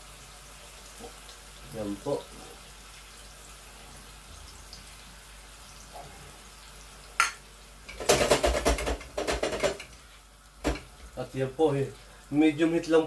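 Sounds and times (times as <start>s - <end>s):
chicken sizzling in oil: 0.0s - 13.0s
pan clattering and rattling: 7.2s - 10.0s, 10.6s - 11.0s.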